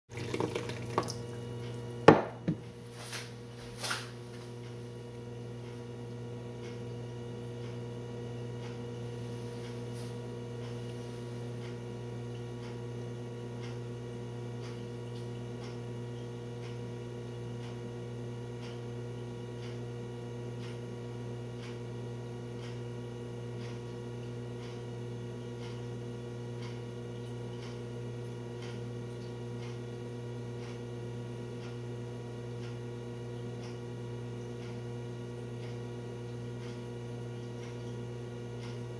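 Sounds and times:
steady electrical hum: 0.1 - 38.9
sharp knocks: 2.1 - 2.6
faint ticking: 37.5 - 38.9.

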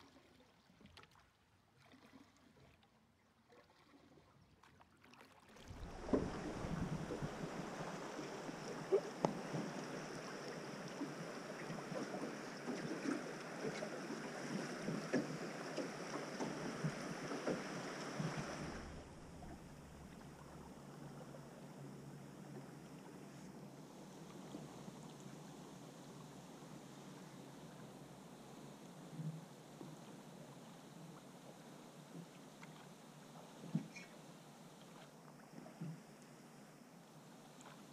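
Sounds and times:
river water rushing against hull: 5.5 - 35.2
low rumble: 5.6 - 12.3.

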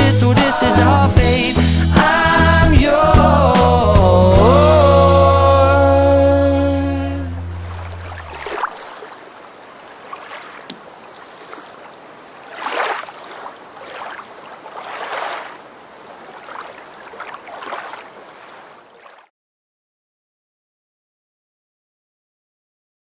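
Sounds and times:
small waves washing on sand: 7.9 - 19.3.

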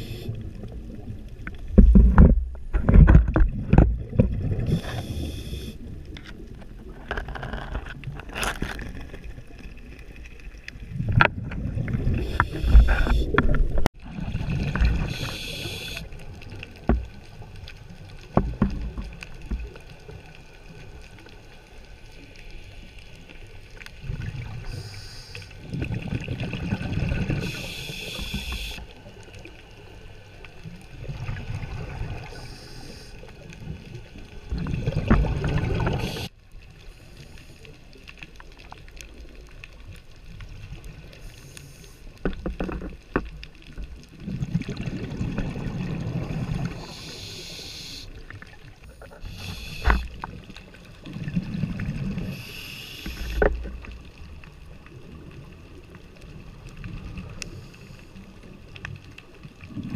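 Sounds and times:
regulator inhalation hiss: 0.0 - 0.3, 4.7 - 5.8, 15.0 - 16.1, 24.6 - 25.6, 27.4 - 28.9, 32.4 - 33.2, 36.0 - 36.3, 46.7 - 48.2, 49.1 - 50.3, 52.3 - 53.5
diver exhaling bubbles underwater: 34.5 - 36.3.

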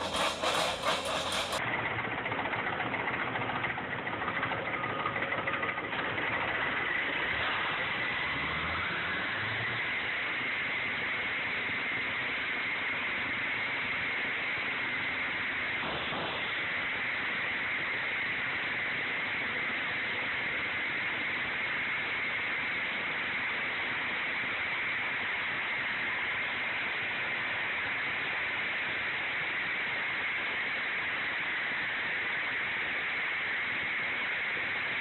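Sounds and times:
concrete saw cutting concrete: 0.0 - 1.6.

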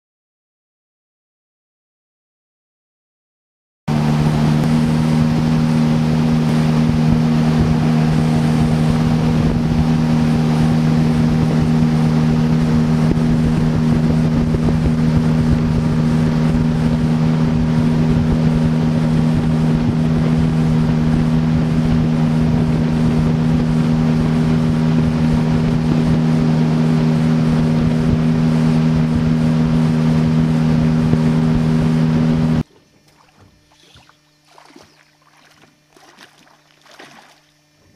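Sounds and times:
wind on microphone: 3.9 - 32.6
outboard motor droning: 3.9 - 37.9.

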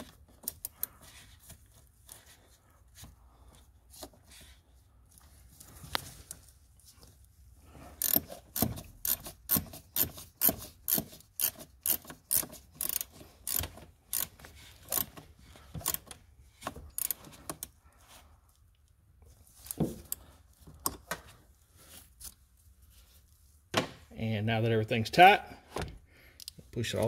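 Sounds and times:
ratchet wrench clicking: 8.0 - 15.2, 15.8 - 16.1, 16.9 - 17.7.

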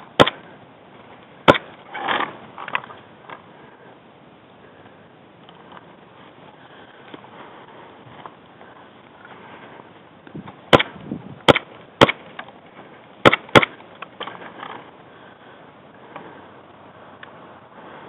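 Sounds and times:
airsoft gunfire cracks: 10.7 - 12.2, 13.2 - 13.8.

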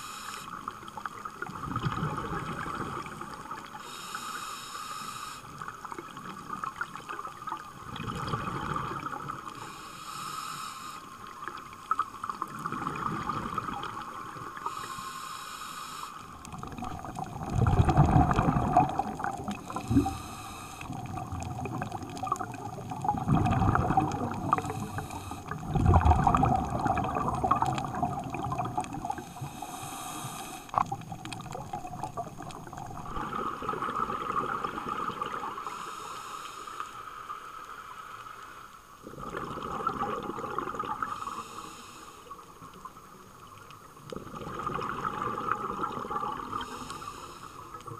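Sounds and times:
diver breathing through regulator: 0.0 - 0.6, 3.8 - 5.6, 9.6 - 11.2, 14.6 - 16.4, 17.9 - 21.0, 23.5 - 26.3, 27.8 - 31.0, 35.6 - 37.0, 41.0 - 42.4, 46.6 - 47.8
exhaled bubbles rushing: 12.2 - 14.4, 16.4 - 29.6, 30.7 - 35.6, 39.0 - 41.2, 44.1 - 46.7
steady hum: 14.7 - 21.3, 23.2 - 33.4.

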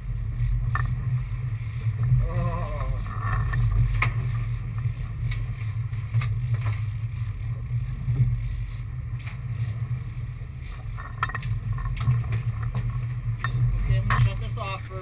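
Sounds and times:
boat engines droning: 0.0 - 15.0.

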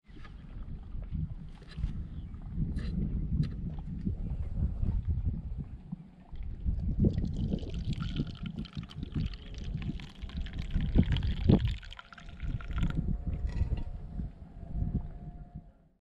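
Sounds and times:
wind buffeting microphone: 0.1 - 15.8
liquid pouring into cup: 6.4 - 13.4.

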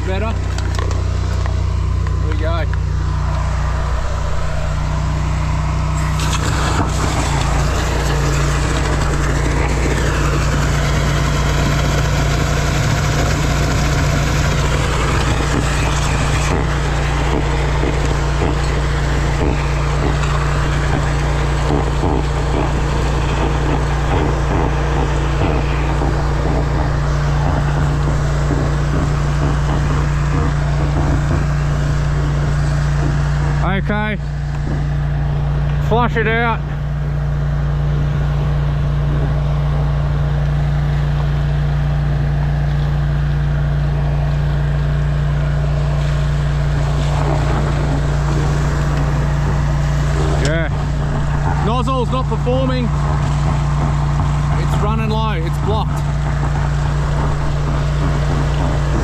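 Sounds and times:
drain jetter engine running: 0.0 - 59.0
water rushing out of drain: 4.0 - 33.4.

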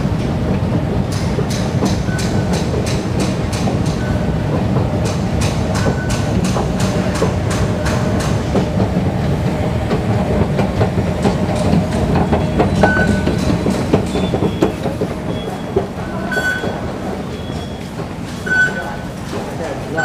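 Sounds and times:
low station rumble: 0.0 - 20.0
scattered clacks: 0.2 - 20.0
fare gate beeps: 12.7 - 13.4, 14.1 - 19.1.

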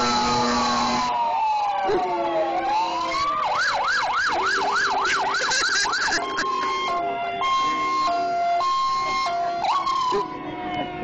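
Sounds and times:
emergency vehicle siren: 0.0 - 11.0.

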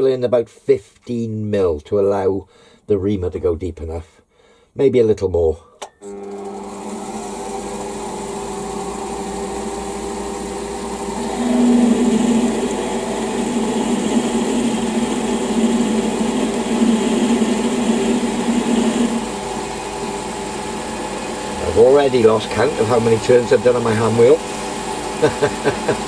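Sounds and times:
drill drilling into metal: 6.0 - 26.0
metal lathe running: 6.1 - 26.0.

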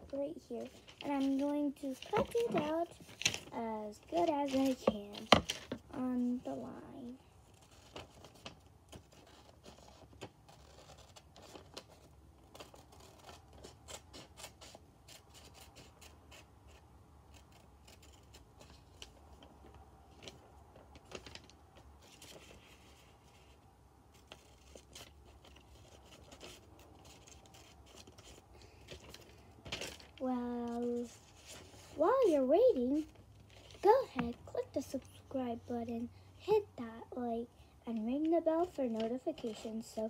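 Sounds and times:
scissors snipping paper: 7.6 - 19.2, 24.1 - 30.1.

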